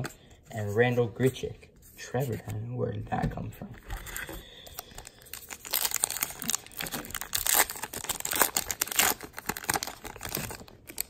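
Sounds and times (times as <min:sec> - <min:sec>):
wrapper tearing and crinkling: 0:04.8 - 0:11.0.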